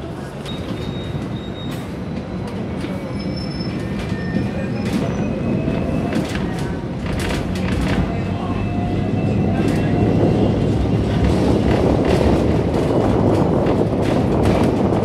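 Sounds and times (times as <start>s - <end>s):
tram running gear rumble: 0.0s - 15.0s
wheels clacking on track: 0.0s - 15.0s
faint high wheel squeal: 0.4s - 6.4s.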